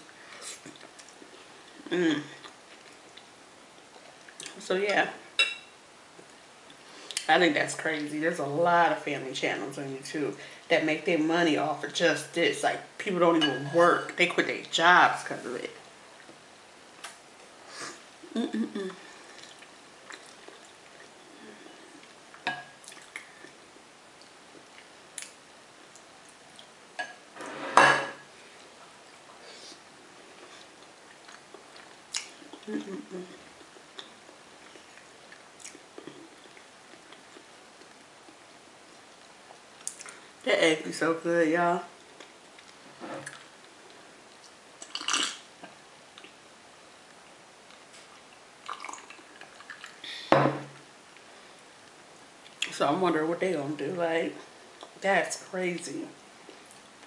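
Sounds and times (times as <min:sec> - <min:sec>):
spoon clinking glass bowl: 0:05.4 - 0:05.7
person drinking sparkling water: 0:48.7 - 0:50.0.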